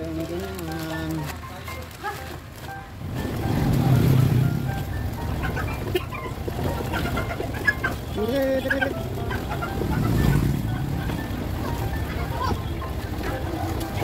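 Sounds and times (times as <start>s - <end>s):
fowl clucking: 4.6s - 14.0s.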